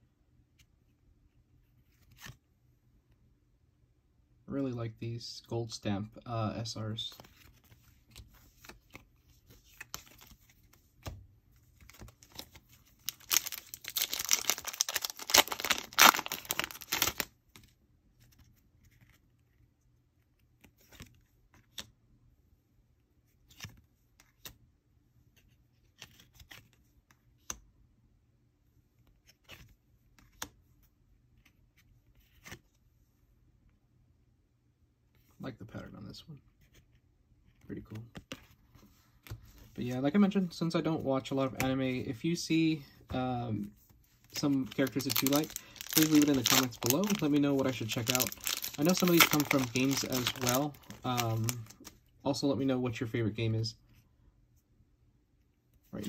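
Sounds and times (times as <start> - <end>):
wrapper tearing and crinkling: 12.2 - 17.3, 44.4 - 51.9.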